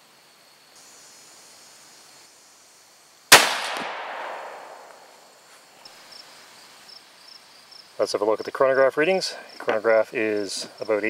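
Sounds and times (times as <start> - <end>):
rifle shot with echo: 3.3 - 5.1.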